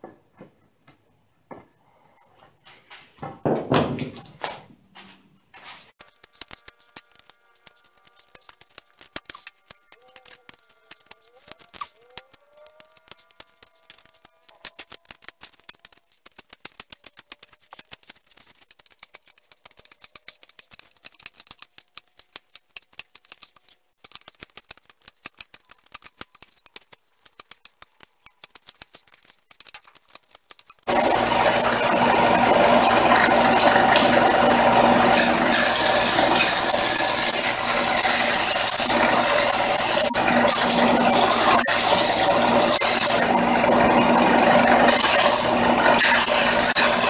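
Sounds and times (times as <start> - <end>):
knife shaving wood: 6.0 - 47.0
belt sander running: 30.9 - 47.0.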